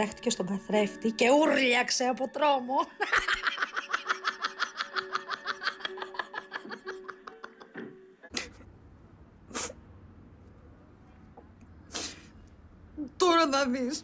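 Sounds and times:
woman laughing hard: 0:03.0 - 0:07.8.

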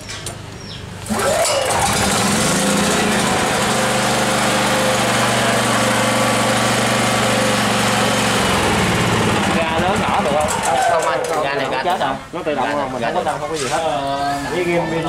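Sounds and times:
portable generator engine running: 0:01.1 - 0:11.4.

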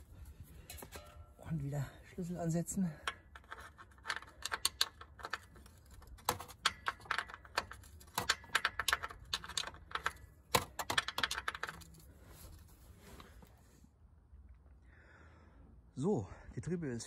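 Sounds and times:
ratcheting wrench clicking: 0:03.4 - 0:11.9.

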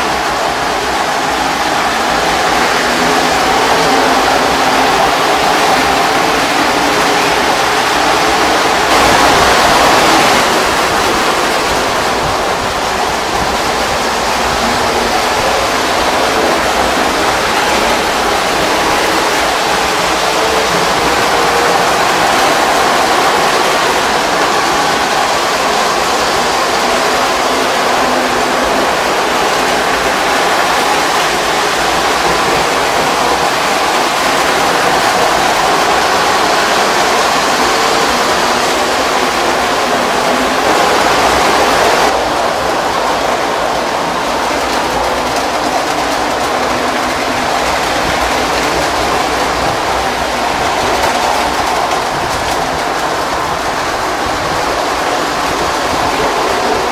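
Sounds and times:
model trains rumbling on metal track: 0:00.0 - 0:56.9.

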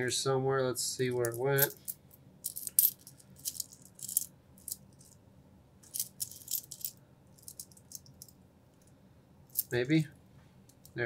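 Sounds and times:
coins clinking together: 0:01.2 - 0:05.2, 0:05.8 - 0:08.3.

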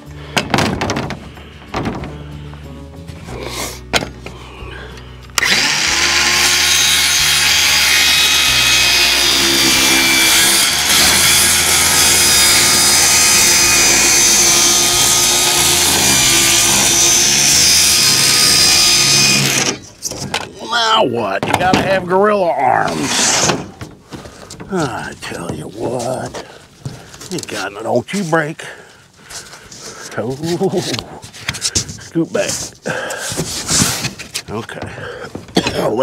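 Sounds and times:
circular saw cutting plywood: 0:05.4 - 0:19.8, 0:22.7 - 0:23.9.

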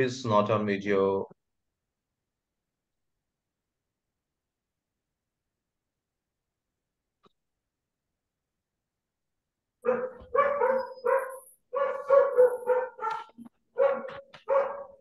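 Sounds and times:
dog barking: 0:09.8 - 0:15.0.

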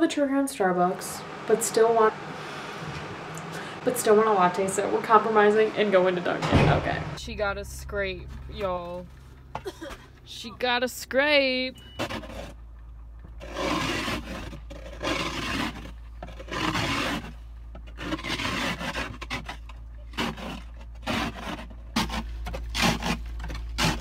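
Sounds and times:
steady low hum: 0:00.0 - 0:24.0
scraper rasping ice off windshield: 0:13.4 - 0:24.0.

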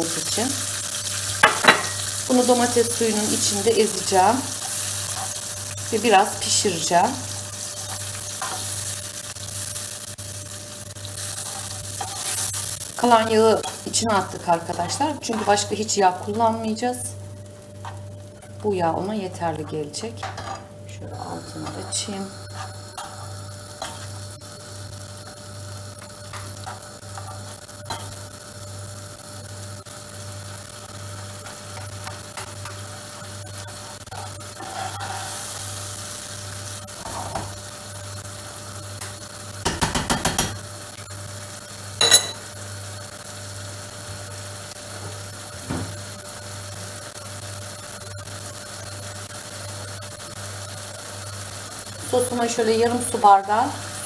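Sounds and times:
faint sizzle: 0:00.0 - 0:54.0
spoon scraping a frying pan: 0:01.4 - 0:02.1, 0:04.5 - 0:05.4, 0:07.5 - 0:08.9, 0:11.2 - 0:12.7, 0:20.2 - 0:24.2, 0:26.0 - 0:28.2, 0:33.6 - 0:35.6, 0:42.0 - 0:42.5
spoon tapping pan: 0:39.6 - 0:40.6, 0:42.0 - 0:42.4
spoon clacking against pan: 0:42.0 - 0:42.4.

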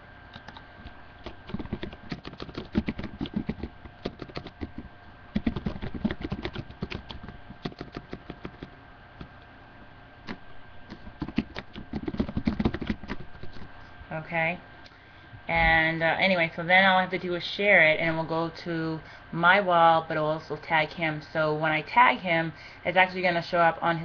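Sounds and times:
faint steady hum: 0:00.0 - 0:24.0
keyboard typing: 0:00.3 - 0:00.6, 0:01.2 - 0:09.3, 0:10.3 - 0:13.7.

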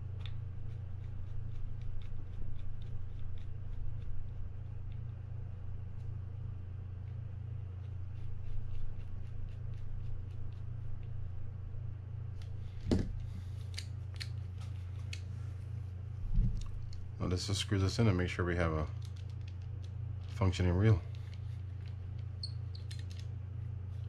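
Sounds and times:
steady low hum: 0:00.0 - 0:24.0
louder knock: 0:12.9 - 0:13.2.

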